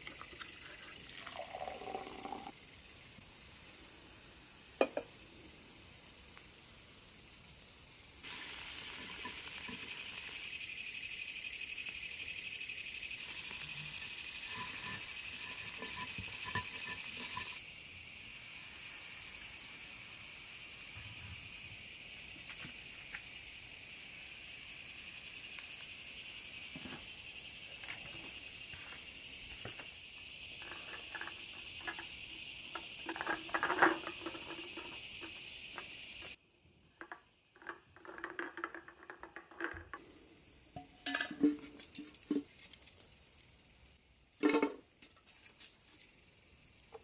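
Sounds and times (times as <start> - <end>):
night insects trilling: 0.0 - 47.0
objects clinking and knocking: 13.3 - 17.6, 30.6 - 35.9, 37.0 - 40.1, 40.8 - 42.9
empty beer cans clattering: 13.8 - 17.6, 32.7 - 35.0, 37.0 - 40.0, 40.8 - 42.5.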